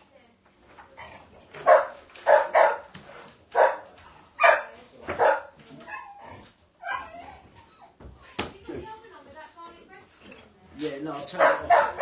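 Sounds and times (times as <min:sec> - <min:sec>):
dog barking indoors: 0:01.0 - 0:08.1, 0:11.2 - 0:12.0.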